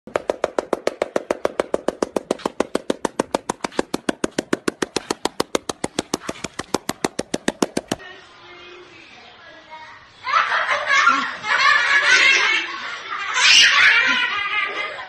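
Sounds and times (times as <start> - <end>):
seal slapping its belly: 0.1 - 8.0.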